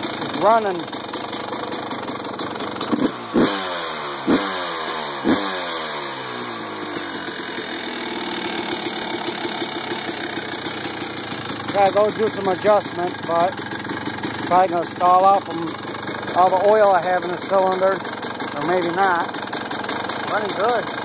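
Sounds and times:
dirt bike engine revving and idling: 0.0s - 21.0s.

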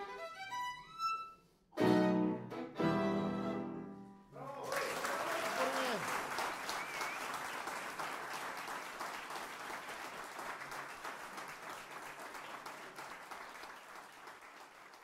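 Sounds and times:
audience applauding: 4.4s - 15.0s.

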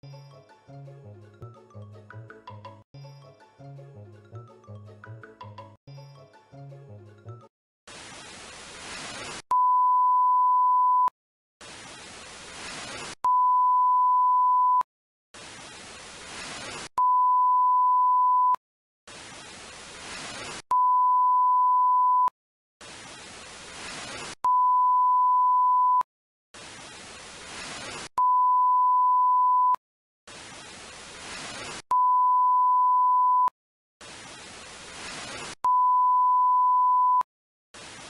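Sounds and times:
tv static hiss: 8.0s - 9.4s, 11.6s - 13.2s, 15.4s - 16.9s, 19.1s - 20.6s, 22.8s - 24.4s, 26.7s - 28.1s, 30.6s - 31.8s, 34.4s - 35.6s.

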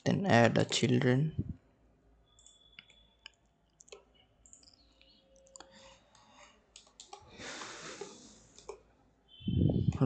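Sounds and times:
keyboard typing clicks: 2.3s - 7.2s.

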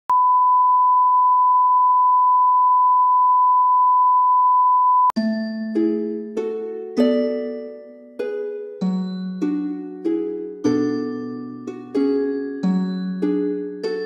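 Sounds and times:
soft plucked notes: 5.2s - 14.0s.

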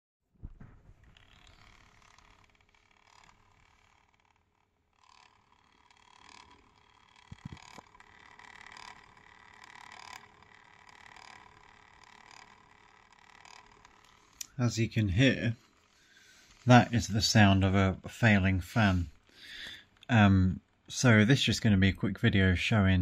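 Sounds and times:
laptop cooling fan whirring: 0.4s - 22.3s.

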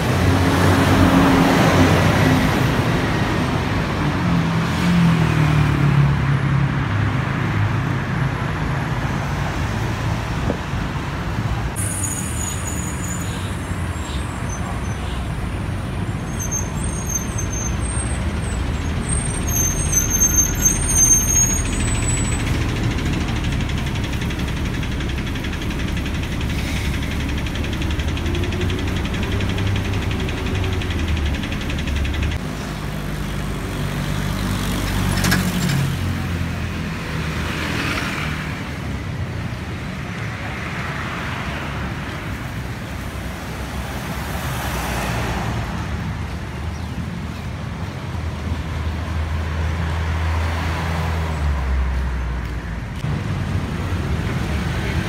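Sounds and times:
road traffic rumble: 0.0s - 55.0s
high-pitched squeals: 11.8s - 15.0s, 16.3s - 22.7s.

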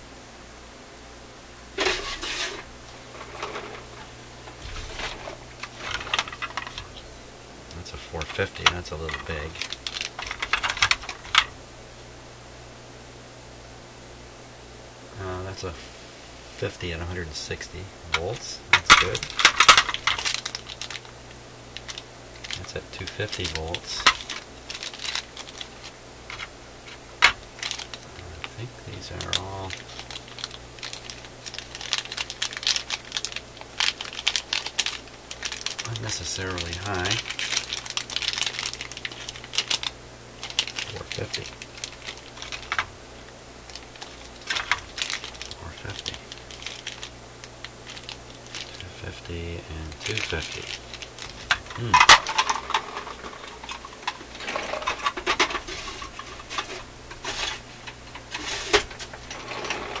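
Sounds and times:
faint electrical hum: 0.0s - 60.0s
plastic bag crinkling: 1.8s - 7.1s, 8.2s - 11.6s, 18.1s - 60.0s
small capacitors clicking together: 4.5s - 11.6s, 18.1s - 58.3s.

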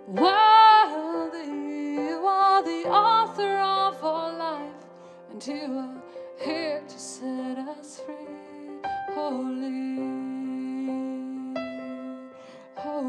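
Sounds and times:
woman singing: 0.0s - 13.0s.

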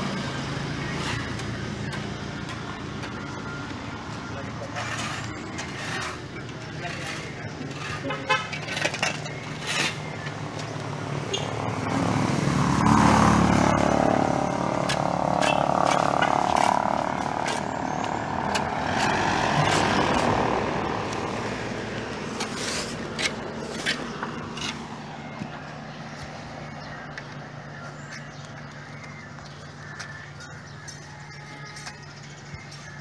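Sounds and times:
shovels scraping in gravel: 4.6s - 10.2s, 14.8s - 20.4s, 22.3s - 24.9s
vehicle passing: 10.8s - 27.8s.

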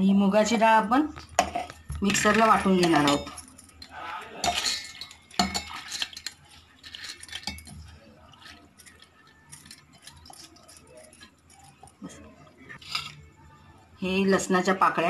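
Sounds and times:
steel plate clinking on bowl: 1.3s - 12.2s.

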